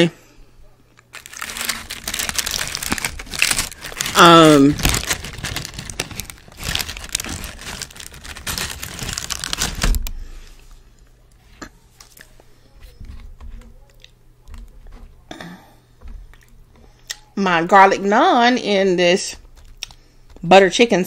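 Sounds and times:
bread tearing with crackling: 1.0 - 10.3.

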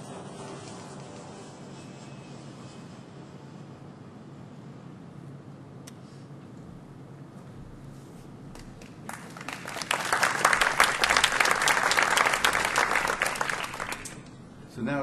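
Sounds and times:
audience applauding: 8.6 - 14.3.

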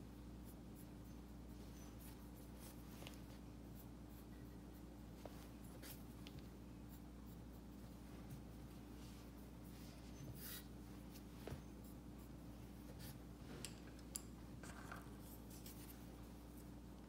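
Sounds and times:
steady low hum: 0.0 - 17.0
paintbrush scratching on tile: 0.4 - 13.4.

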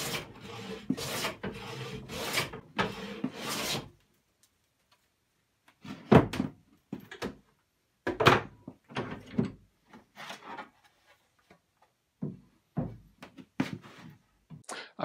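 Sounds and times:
hand plane shaving wood: 0.0 - 3.9.

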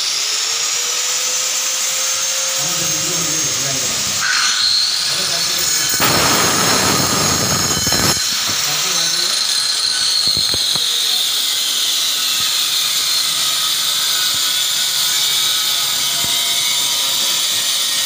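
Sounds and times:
power tool whining: 0.0 - 18.0.

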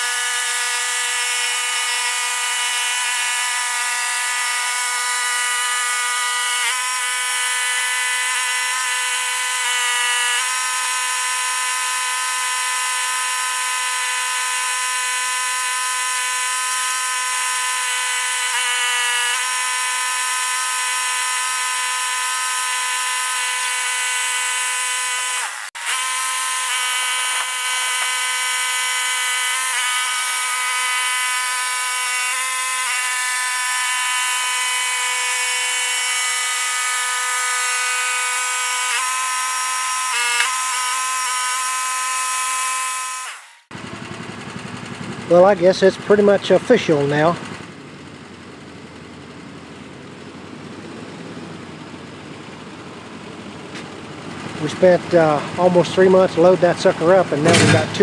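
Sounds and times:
hydraulic lift whining: 10.4 - 36.0, 38.3 - 58.0.

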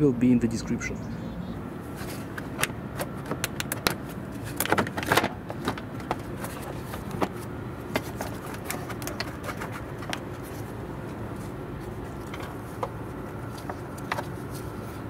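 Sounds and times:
hard plastic clattering: 2.0 - 10.7.

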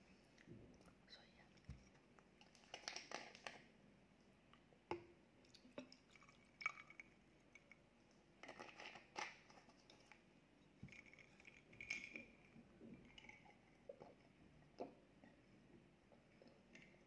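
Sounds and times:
drink pouring into glass: 5.7 - 7.2.

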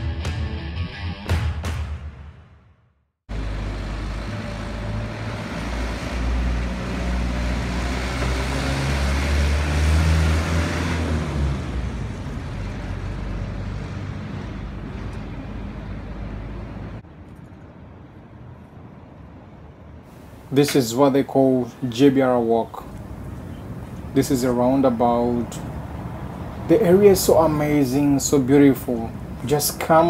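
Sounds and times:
vehicle engine running close by: 3.3 - 17.0
rumble of street noise: 3.3 - 30.0.

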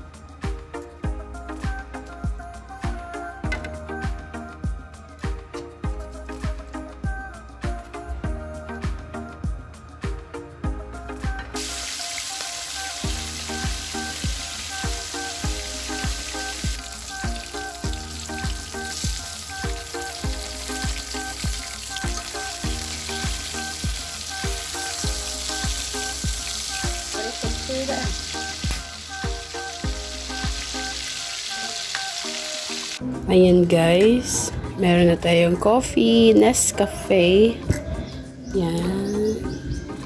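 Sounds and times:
background music with beat: 0.0 - 40.0
fish sizzling in hot oil: 11.6 - 33.0.

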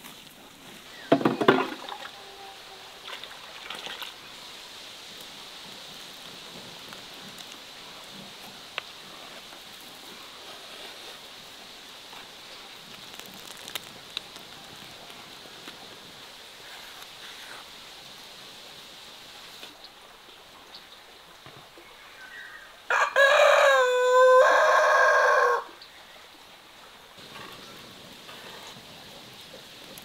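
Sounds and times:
fruit boiling in a pan: 0.0 - 19.8, 27.2 - 30.0.

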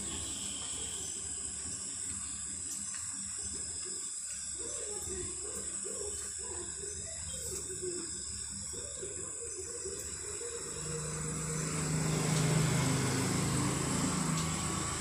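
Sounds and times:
passing motor vehicle engine: 10.2 - 15.0.

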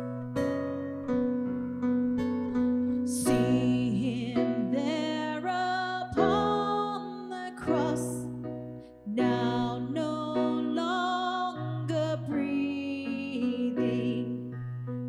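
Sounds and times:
electric piano: 0.0 - 15.0
woman singing: 3.1 - 8.4, 9.0 - 14.6.

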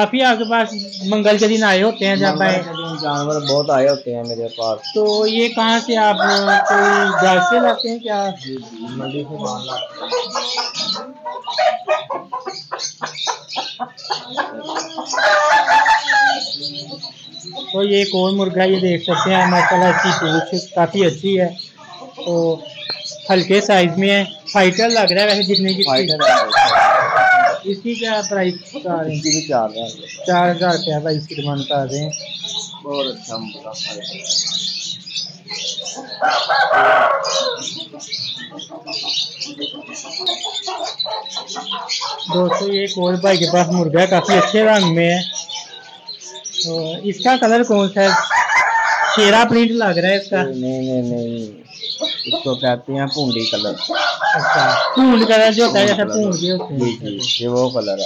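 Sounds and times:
chickens clucking: 0.0 - 58.0
parrots chirping: 0.0 - 58.0
rooster crowing: 6.1 - 7.9, 15.1 - 16.6, 19.0 - 20.7, 26.1 - 27.7, 36.1 - 37.8, 48.0 - 49.6, 53.9 - 56.0.

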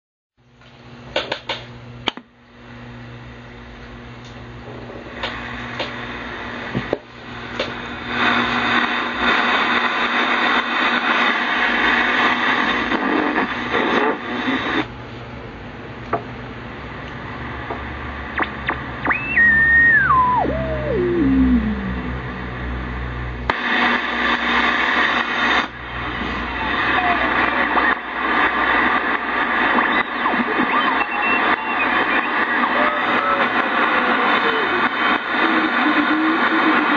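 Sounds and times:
shortwave radio static hiss: 4.6 - 14.9, 17.2 - 36.9
tuning dial clicks: 17.1 - 22.4
falling heterodyne whistle: 19.1 - 21.6.

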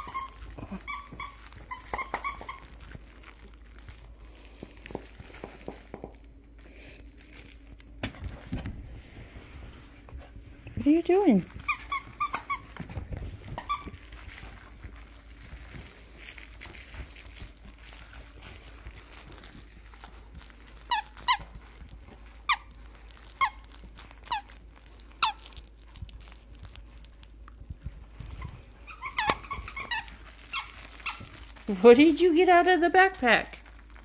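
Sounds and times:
squeaky toy squeaks: 0.0 - 2.8, 11.6 - 12.8, 13.6 - 14.1, 28.3 - 31.5
dog chewing toy: 0.0 - 6.5, 10.8 - 32.0.

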